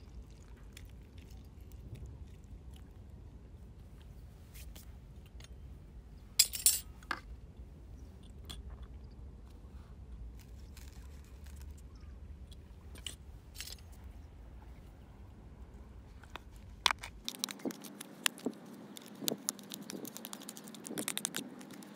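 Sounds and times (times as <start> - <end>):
low steady rumble: 0.0 - 21.9
seasoning ticks and rustles: 10.4 - 13.7, 16.3 - 21.9.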